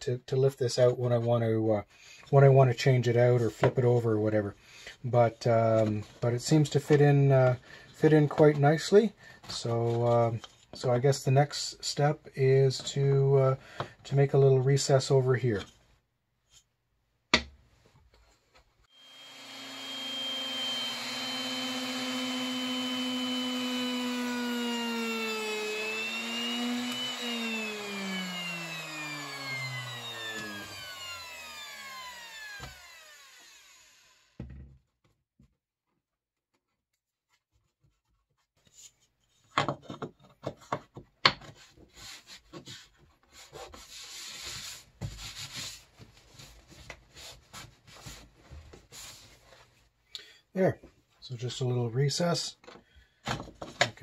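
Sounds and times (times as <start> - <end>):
router running and winding down: 19.0 - 34.5.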